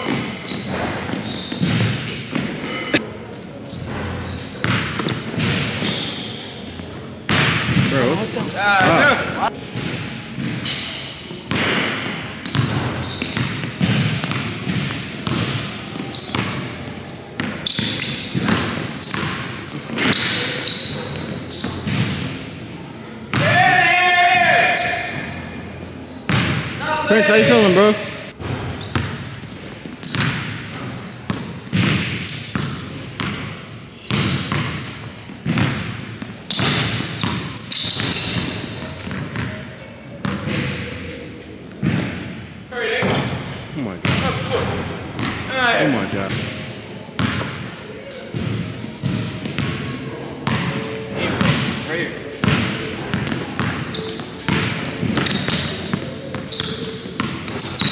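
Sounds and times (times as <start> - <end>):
basketball bouncing on gym floor: 0.0 - 2.8, 4.6 - 6.1, 11.5 - 16.8, 17.4 - 20.4, 21.1 - 22.3, 26.3 - 26.7, 29.8 - 39.6, 44.0 - 44.4, 47.2 - 47.6, 48.3 - 49.8, 50.4 - 50.7, 51.4 - 51.8, 52.4 - 57.9
sneaker squeaks on floor: 0.0 - 8.0, 9.7 - 23.6, 24.6 - 26.6, 28.7 - 39.6, 45.2 - 57.9.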